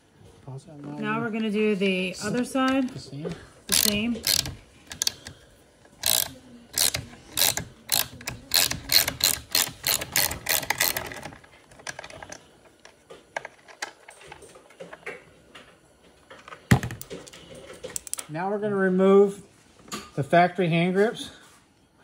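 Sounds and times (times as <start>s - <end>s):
ratchet wrench clicking: 3.7s - 5.3s, 5.9s - 11.3s.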